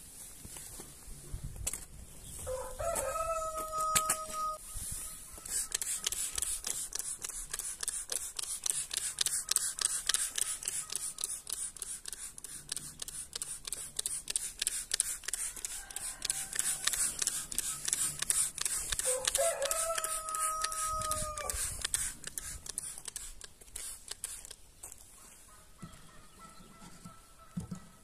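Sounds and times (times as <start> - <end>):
rooster crowing: 2.5 - 4.6, 15.6 - 17.2, 19.0 - 21.6.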